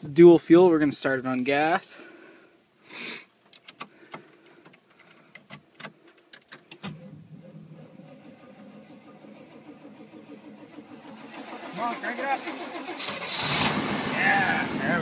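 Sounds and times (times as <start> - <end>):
keys and switches clicking: 3.5 - 6.9.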